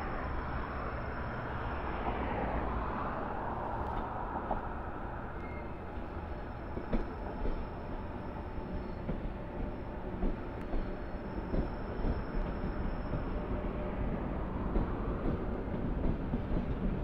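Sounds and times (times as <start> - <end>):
train wheels and motors rumbling: 0.0 - 17.0.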